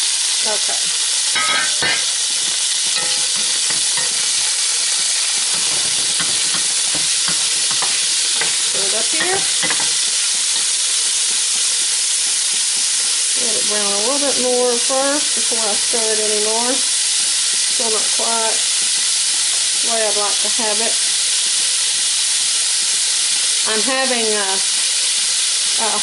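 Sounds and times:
beef sizzling in hot oil: 0.0s - 26.0s
wooden spoon stirring and scraping: 3.0s - 10.0s.

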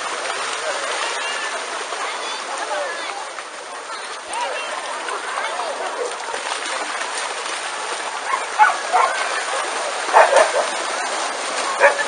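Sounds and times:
crowd noise: 0.0s - 12.0s
splashing water: 0.0s - 12.0s
dogs barking: 8.2s - 9.4s, 10.1s - 10.8s, 11.8s - 12.0s.

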